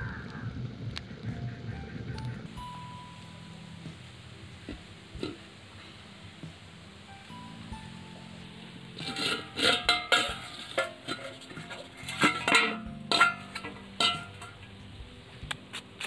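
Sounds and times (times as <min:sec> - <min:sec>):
background music: 0:00.0 - 0:16.0
steel bowl clanking on metal pan: 0:09.0 - 0:14.7.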